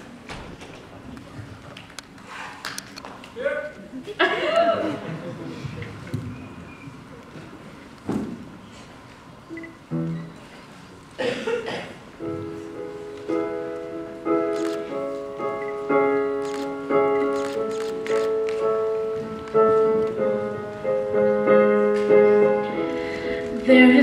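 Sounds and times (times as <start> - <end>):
piano chords: 9.5 - 10.8, 12.0 - 24.0.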